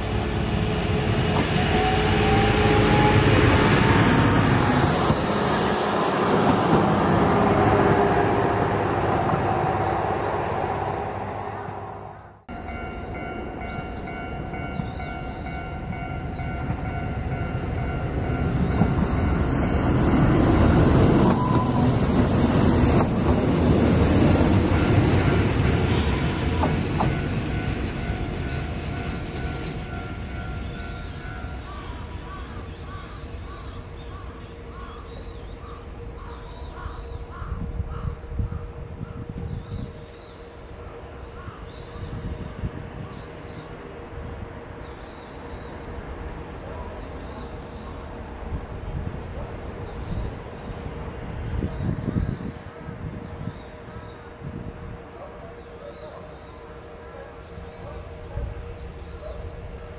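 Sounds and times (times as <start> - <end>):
diesel railcar engine: 0.0 - 59.9.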